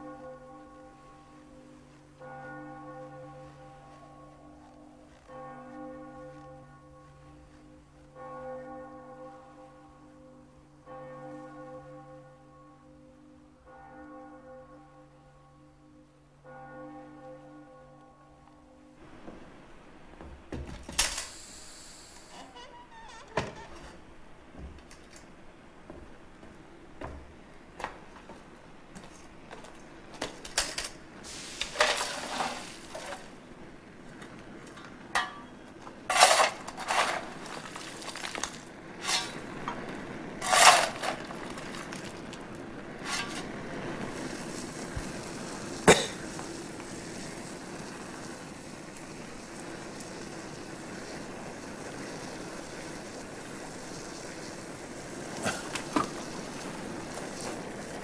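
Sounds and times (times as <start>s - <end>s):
fire burning with rushing hiss: 19.0s - 58.0s
metal clanking and scraping: 31.6s - 33.3s, 34.7s - 39.8s, 40.4s - 41.8s, 43.0s - 43.6s.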